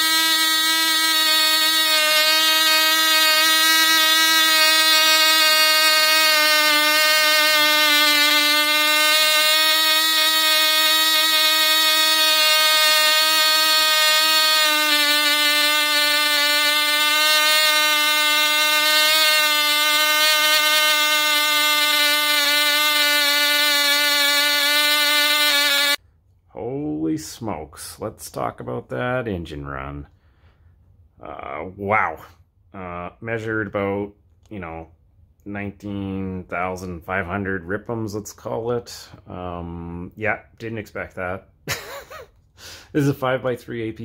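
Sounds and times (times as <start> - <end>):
model engine screaming: 0.0 - 26.0.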